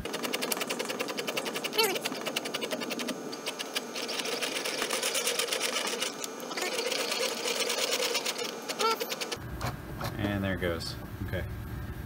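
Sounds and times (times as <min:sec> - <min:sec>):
stepper motor buzzing: 0:00.0 - 0:09.6.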